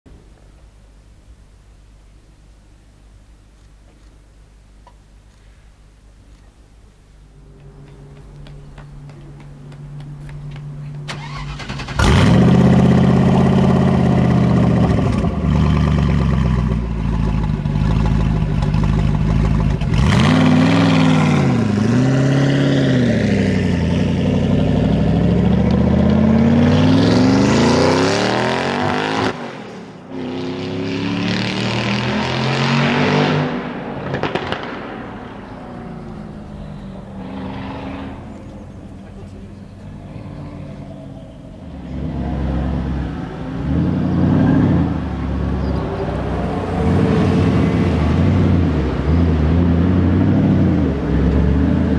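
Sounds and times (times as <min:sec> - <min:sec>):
low hum: 0:00.1 - 0:20.1
car engine starting and revving: 0:11.0 - 0:40.0, 0:41.1 - 0:51.9.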